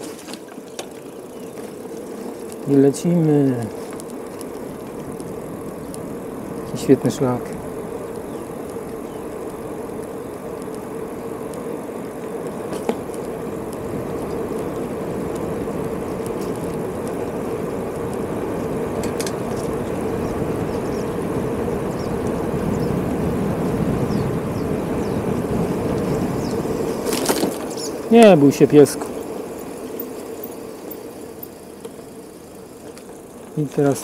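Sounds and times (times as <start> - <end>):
bicycle rolling at speed: 0.0 - 34.0
faint clicks: 3.7 - 22.9.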